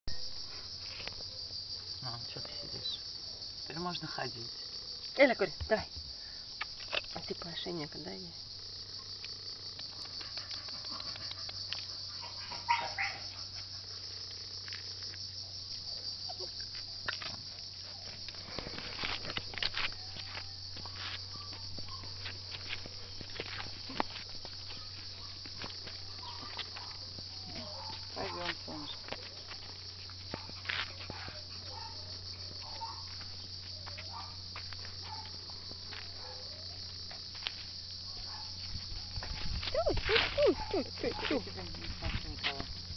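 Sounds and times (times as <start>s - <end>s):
insects chirring: 0.1s - 42.9s
footsteps on pavement: 16.6s - 42.9s.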